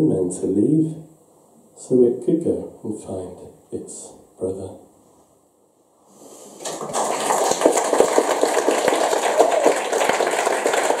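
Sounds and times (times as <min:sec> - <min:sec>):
audience applauding: 0:06.6 - 0:11.0.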